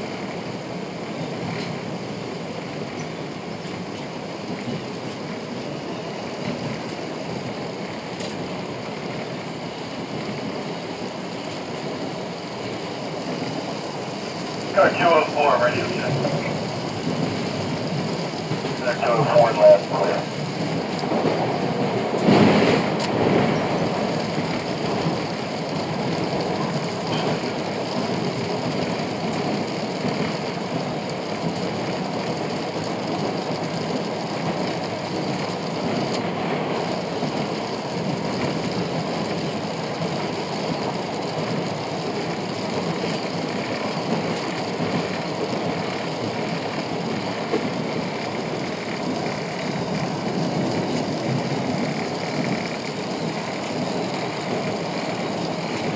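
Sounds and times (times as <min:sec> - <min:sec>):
train wheels rumbling on rails: 0:00.0 - 0:55.9.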